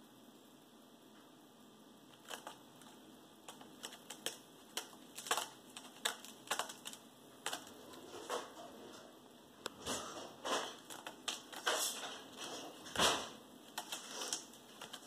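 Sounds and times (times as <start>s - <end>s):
cat claws scratching rope post: 2.1s - 8.7s, 10.1s - 13.1s, 13.7s - 15.0s.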